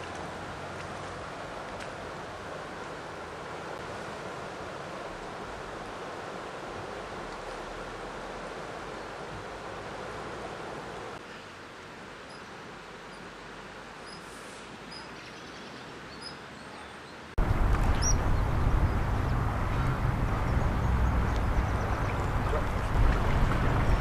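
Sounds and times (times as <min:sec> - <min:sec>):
heavy low rumble: 0:17.4 - 0:24.0
outdoor rushing noise: 0:17.4 - 0:24.0.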